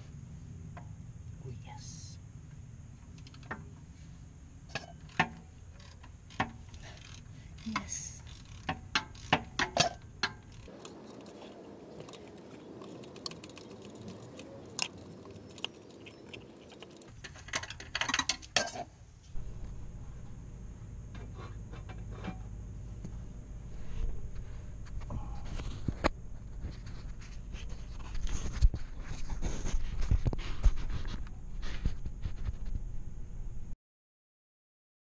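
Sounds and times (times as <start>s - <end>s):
ratchet clicking against metal: 5.8s - 10.7s.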